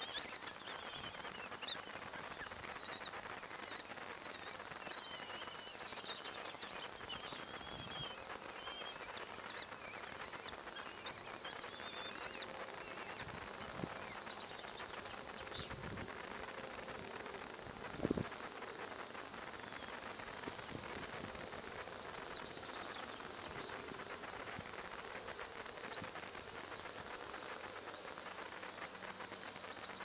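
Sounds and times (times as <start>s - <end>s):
chicks begging calls: 0.0s - 18.8s
steady hiss: 0.0s - 30.0s.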